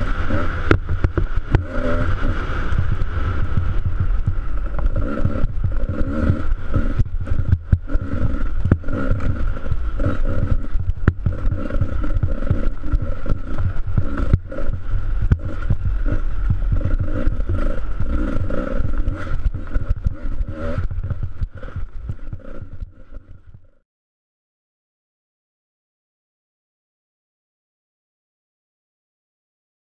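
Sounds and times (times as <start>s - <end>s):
knocks and jolts from bumpy track: 0.0s - 22.8s
dirt bike engine rumbling: 0.0s - 23.8s.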